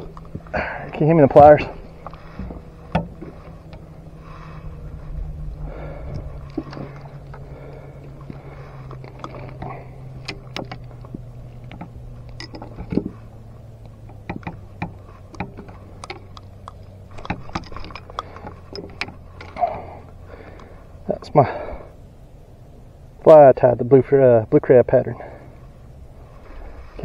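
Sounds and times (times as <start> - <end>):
steady low hum: 0.0 - 27.0
clicks and light knocks: 6.0 - 20.7.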